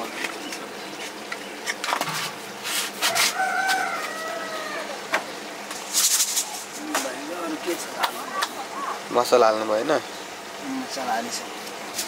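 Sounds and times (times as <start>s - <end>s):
rooster crowing: 3.0s - 5.3s.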